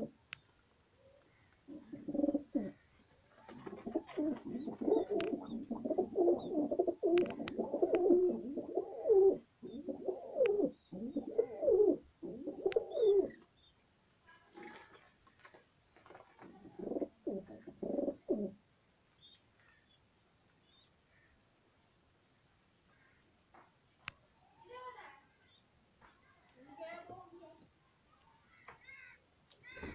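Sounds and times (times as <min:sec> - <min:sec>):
pigeons cooing: 0:01.0 - 0:13.4, 0:16.4 - 0:18.6.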